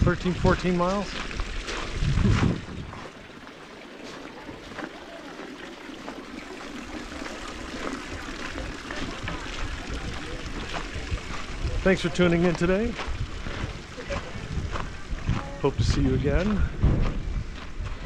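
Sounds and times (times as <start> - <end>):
wind on microphone: 1.4 - 3.3, 8.1 - 18.0.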